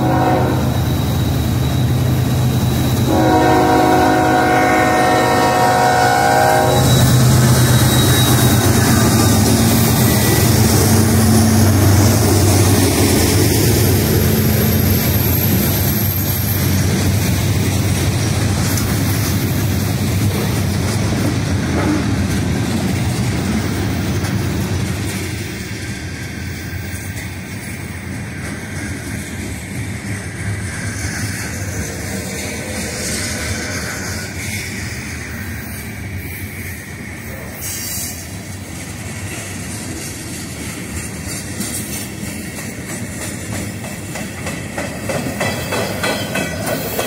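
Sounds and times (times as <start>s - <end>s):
train horn blast: 0.0s - 0.8s, 3.0s - 7.0s
freight cars rumbling over rails: 0.0s - 36.2s
locomotive engines droning: 0.0s - 44.8s.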